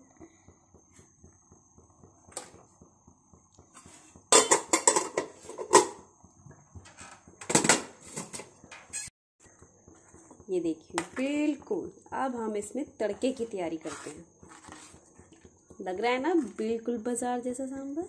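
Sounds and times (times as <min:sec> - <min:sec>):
metal cookware clattering: 0:04.3 - 0:06.0, 0:06.8 - 0:09.1.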